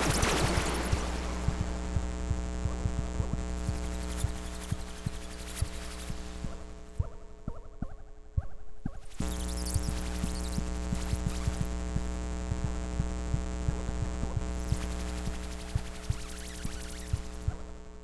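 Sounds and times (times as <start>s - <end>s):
synthesizer drone: 0.0s - 8.4s
deep hum: 0.0s - 18.0s
short low pulses and clicks: 0.0s - 18.0s.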